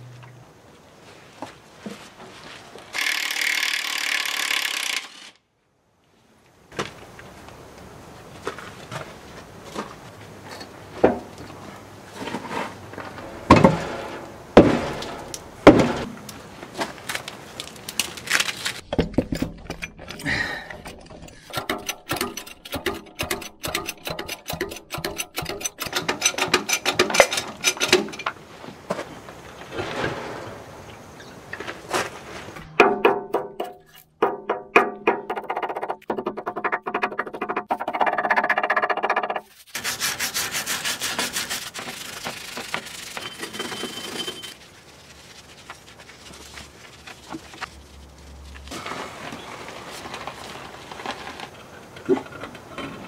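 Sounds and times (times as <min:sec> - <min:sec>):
metal knocks and clanks: 0:13.0 - 0:16.2, 0:18.8 - 0:28.4
hand tool noise: 0:19.0 - 0:28.4, 0:39.3 - 0:44.6.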